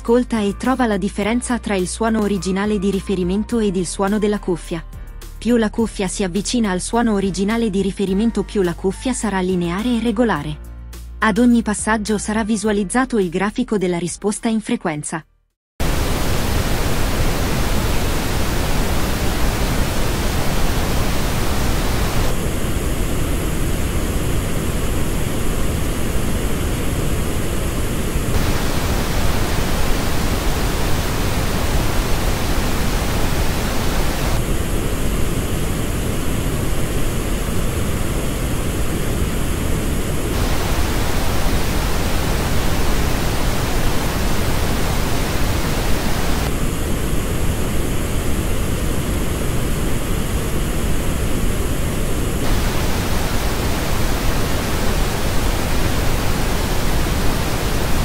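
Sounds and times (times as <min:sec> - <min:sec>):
pink noise test signal: 0:15.8 - 0:58.0.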